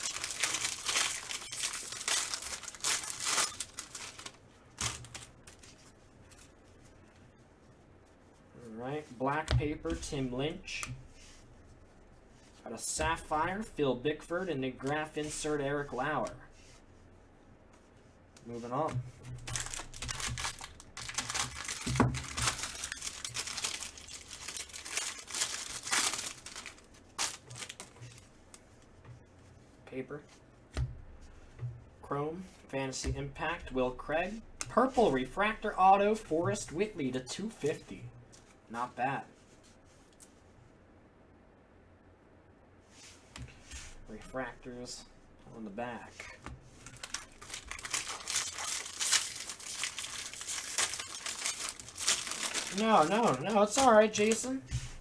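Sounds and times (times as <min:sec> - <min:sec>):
foil wrapper tearing and crinkling: 0:00.0 - 0:05.6, 0:19.5 - 0:28.2, 0:46.8 - 0:54.6.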